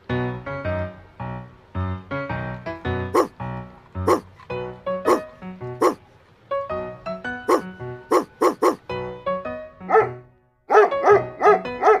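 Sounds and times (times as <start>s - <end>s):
background music: 0.0s - 12.0s
dog barking: 3.1s - 3.4s, 4.0s - 4.3s, 5.1s - 6.0s, 7.5s - 8.8s, 9.9s - 12.0s.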